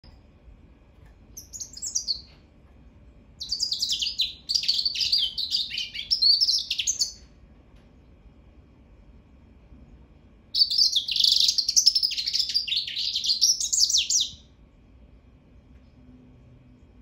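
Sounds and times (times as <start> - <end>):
bird singing high twittering: 1.4 - 2.3, 3.4 - 7.3, 10.6 - 14.4.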